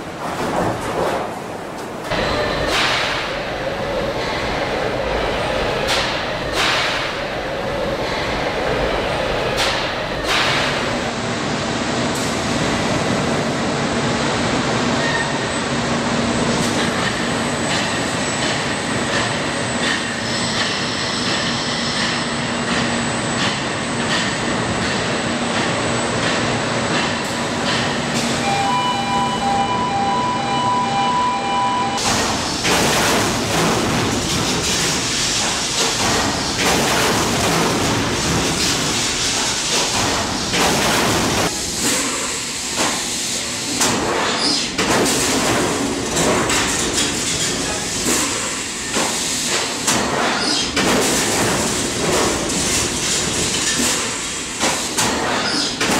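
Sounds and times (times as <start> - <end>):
industrial machinery noise: 0.0 - 55.9
pulsed electronic warning beep: 28.4 - 32.0.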